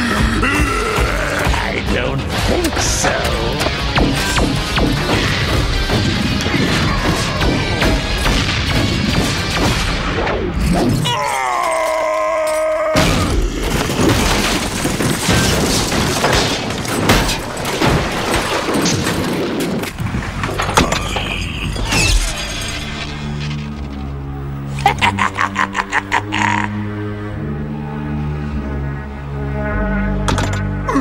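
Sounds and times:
dramatic score: 0.0s - 31.0s
energy blasts and booms: 2.2s - 11.0s.

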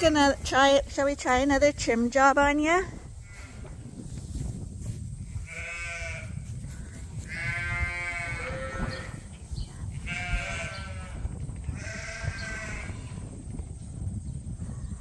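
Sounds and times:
sheep bleating: 5.4s - 6.3s, 7.3s - 9.2s, 10.0s - 13.2s.

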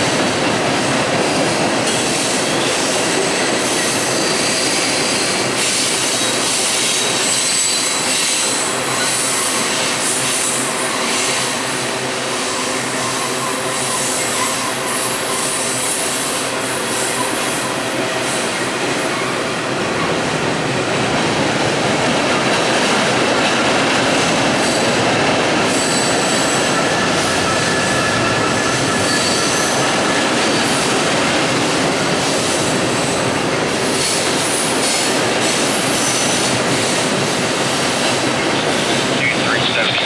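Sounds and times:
train wheels rumbling on rail: 0.0s - 40.0s
high wheel squeals: 7.0s - 11.7s, 12.3s - 17.8s, 25.7s - 30.7s.

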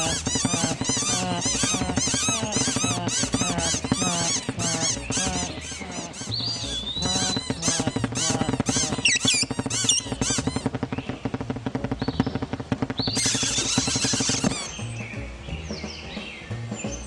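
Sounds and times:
cartoon birds chattering: 0.0s - 11.2s, 13.0s - 14.8s
music: 0.0s - 17.0s.

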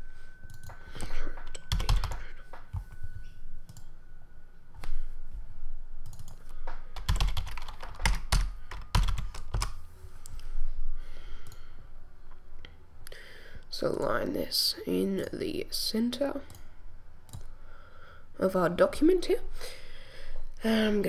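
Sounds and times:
typing on computer keyboard: 1.4s - 2.2s, 6.0s - 9.8s.

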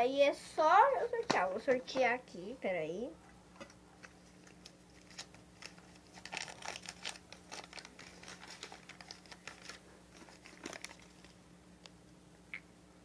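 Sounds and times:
low steady hum: 0.0s - 13.0s
paper slips crinkling: 4.0s - 11.4s.

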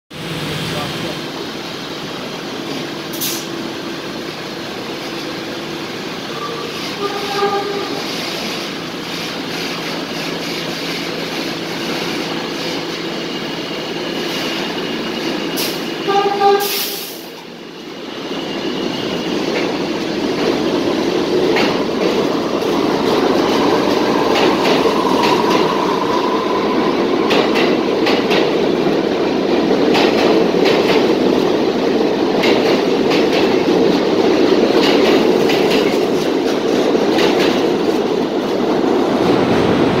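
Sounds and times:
burst of air hiss: 16.6s - 17.3s
train wheel clatter: 18.9s - 40.0s.

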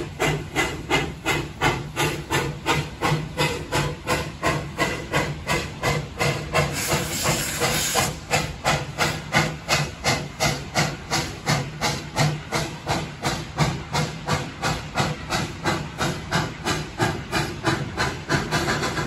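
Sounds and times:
steam hissing: 0.0s - 19.0s
steam locomotive chuffing: 0.0s - 19.0s.

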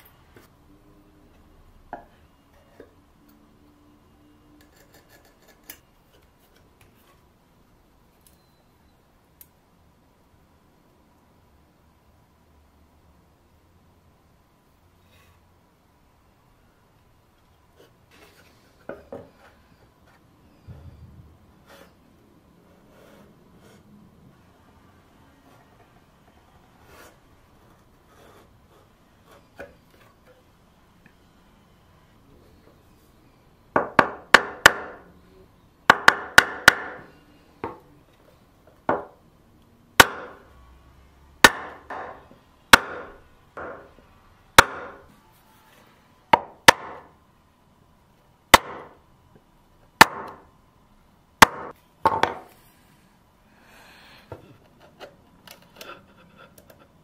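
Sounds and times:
mallet striking chisel into wood: 33.8s - 35.0s, 35.9s - 37.0s, 40.0s - 40.4s, 41.4s - 43.9s, 44.6s - 45.0s, 46.4s - 47.1s, 48.5s - 48.9s, 50.0s - 50.4s, 51.4s - 52.4s.

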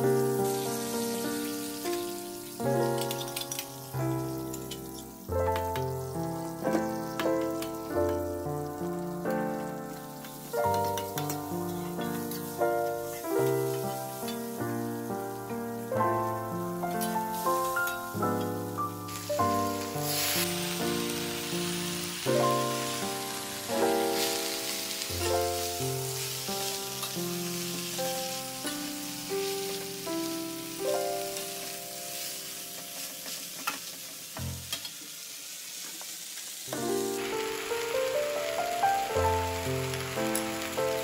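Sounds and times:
background music: 0.0s - 32.3s
oil sizzling in a wok: 0.0s - 41.0s.

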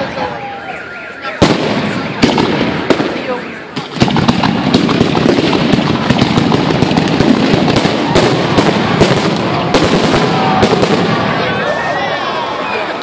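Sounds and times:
fireworks bursting: 1.2s - 11.9s.

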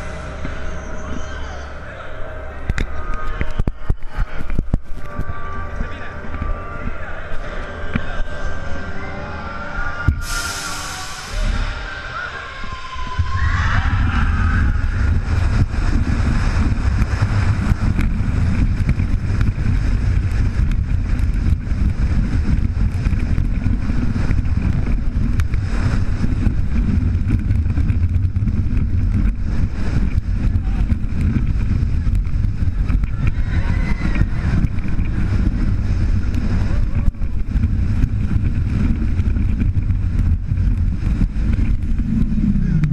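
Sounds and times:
wind buffeting microphone: 0.0s - 9.0s, 10.0s - 42.9s
roller coaster rumbling on track: 0.0s - 42.9s.

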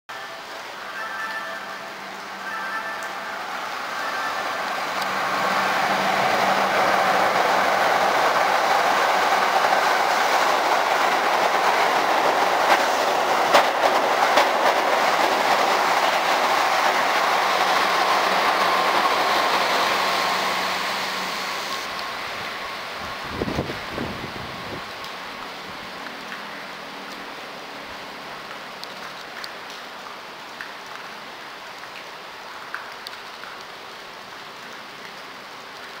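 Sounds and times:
electric train passing: 0.1s - 28.5s
steady hiss: 0.2s - 28.4s
train wheel clacks: 5.9s - 20.5s.

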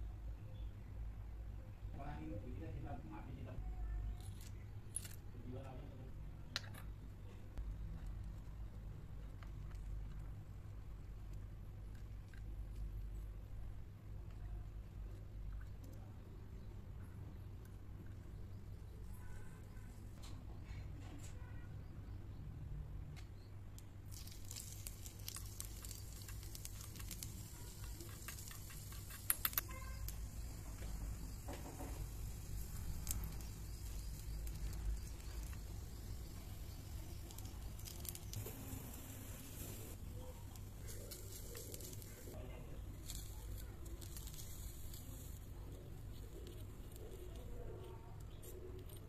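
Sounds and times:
steady low hum: 21.9s - 48.9s
oil sizzling: 24.1s - 42.4s.

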